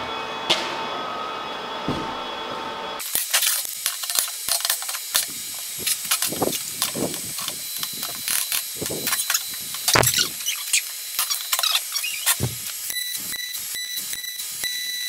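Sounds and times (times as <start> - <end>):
steel parts clicking and clanking: 3.1 - 12.8.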